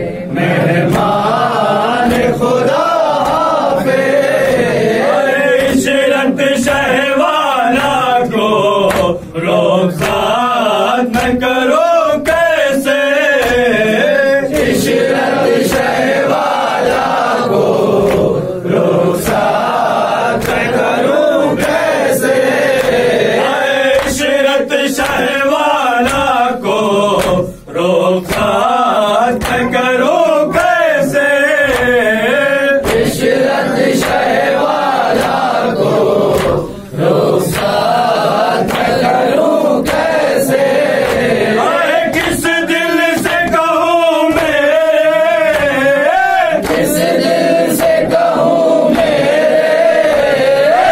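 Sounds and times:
male chorus singing a lament: 0.0s - 50.9s
hands slapping chests: 2.0s - 4.8s, 8.8s - 9.3s, 10.0s - 10.4s, 11.0s - 11.5s, 12.2s - 18.4s, 19.2s - 24.3s, 25.0s - 25.4s, 26.0s - 26.5s, 27.1s - 27.6s, 28.2s - 28.7s, 29.3s - 32.1s, 32.8s - 35.6s, 36.2s - 49.4s.

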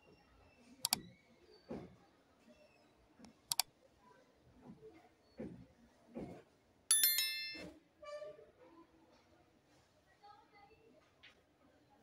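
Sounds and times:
bell ding: 6.9s - 7.7s.

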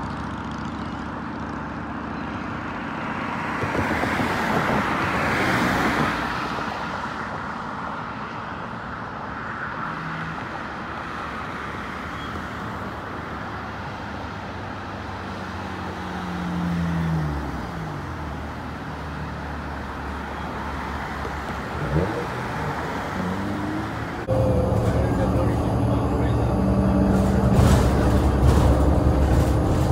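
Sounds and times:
cars passing: 0.0s - 29.9s
vehicle engine passing by: 21.5s - 29.9s.

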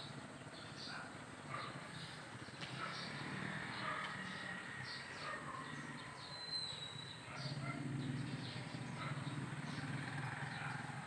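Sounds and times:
birds chirping: 0.0s - 11.0s
drawn-out high bird whistle: 5.4s - 7.6s.

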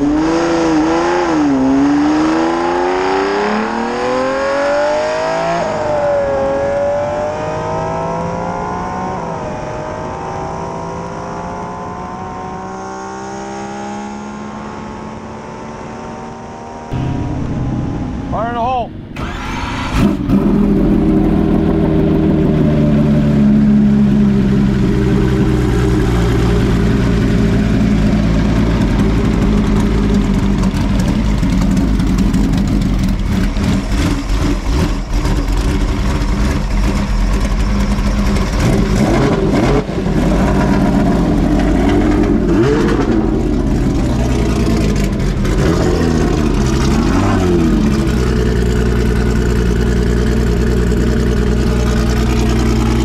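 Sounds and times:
engine idling: 16.9s - 39.2s, 43.3s - 53.0s.

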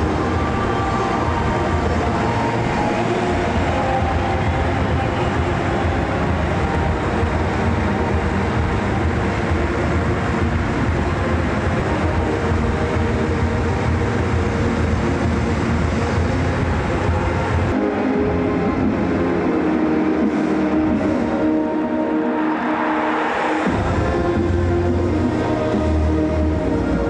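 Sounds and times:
crowd clapping: 0.0s - 14.2s
stadium crowd din: 0.0s - 27.0s.

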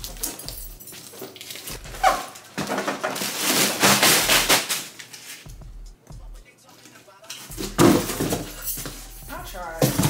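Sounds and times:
cardboard box ripping: 1.4s - 5.0s.

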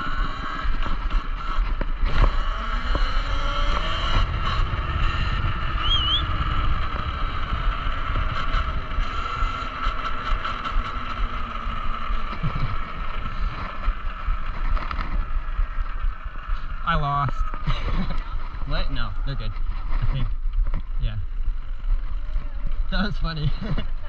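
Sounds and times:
electric motor whine: 0.0s - 23.8s
wind buffeting microphone: 0.0s - 24.0s
warbling chirp: 5.6s - 6.7s.

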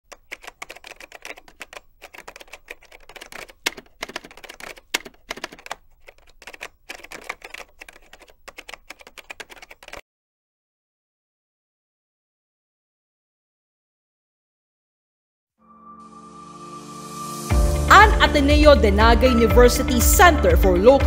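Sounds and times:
keystroke clicks: 0.1s - 10.0s.

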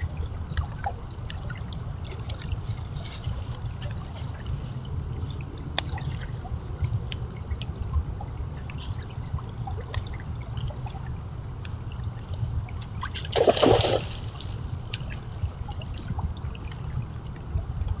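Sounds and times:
shallow creek running: 0.0s - 18.0s
deer splashing through water: 12.6s - 15.9s.

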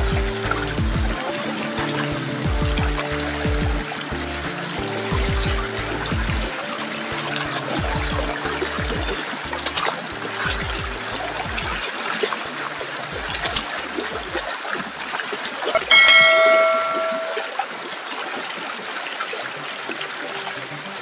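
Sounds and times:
river running over rocks: 0.0s - 21.0s
bell chime: 15.9s - 17.6s.

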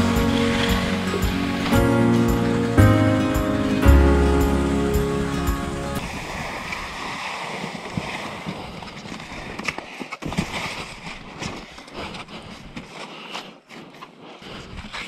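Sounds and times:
background music: 0.0s - 6.0s
skis scraping over crusty snow: 5.7s - 15.0s
clicks and knocks of skis and poles: 6.7s - 15.0s.

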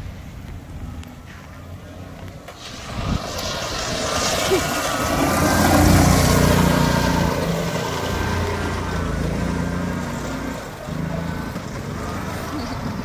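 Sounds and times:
golf cart engine running hard: 0.0s - 13.0s.

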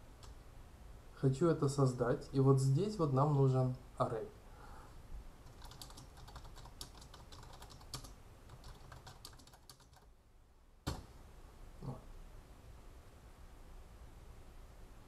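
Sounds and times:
computer keyboard typing: 5.4s - 10.1s.

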